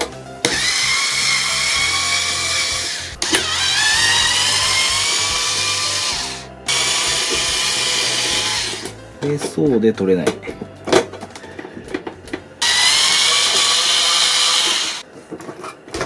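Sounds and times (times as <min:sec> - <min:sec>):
electric screwdriver motor whining: 0:00.5 - 0:08.9, 0:12.6 - 0:15.0.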